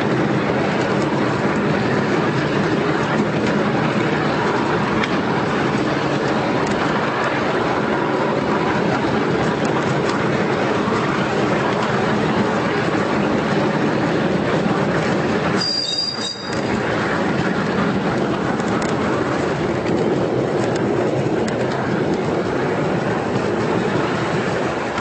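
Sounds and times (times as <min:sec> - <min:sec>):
miniature train wheels rattling on rail: 0:00.0 - 0:25.0.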